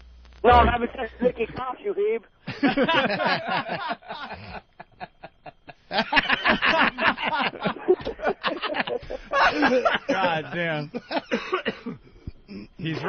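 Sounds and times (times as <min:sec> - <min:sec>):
men laughing and snickering: 0:02.5 - 0:13.0.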